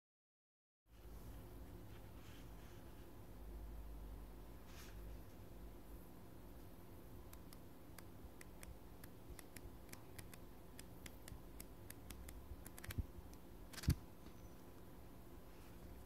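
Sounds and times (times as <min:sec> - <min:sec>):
notepad pages flipping: 0:13.7 - 0:14.0.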